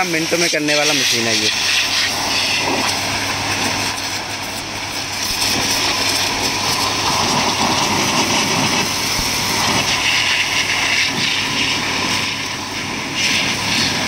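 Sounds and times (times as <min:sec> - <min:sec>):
pressure washer pump humming: 0:00.0 - 0:14.0.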